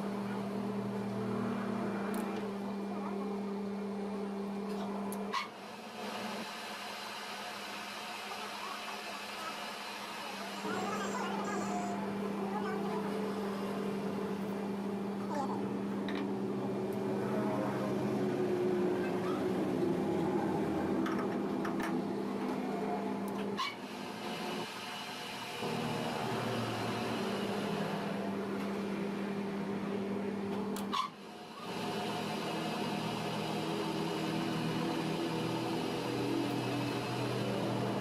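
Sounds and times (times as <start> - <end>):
lathe motor humming: 5.7 - 23.3, 23.9 - 38.0.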